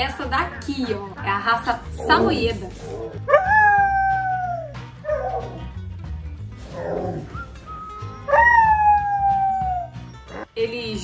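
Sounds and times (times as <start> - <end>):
dog grumbling and whining: 1.9 - 5.7, 6.6 - 7.4
dog howling: 2.1 - 5.7, 8.0 - 10.4.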